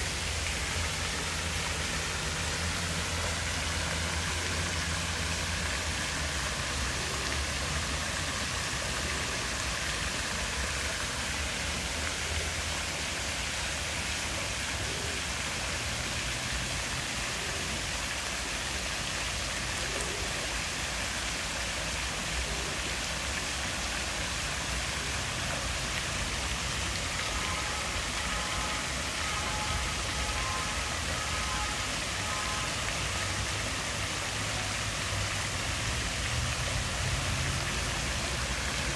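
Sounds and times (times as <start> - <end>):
fountain jets splashing into pool: 0.0 - 38.9.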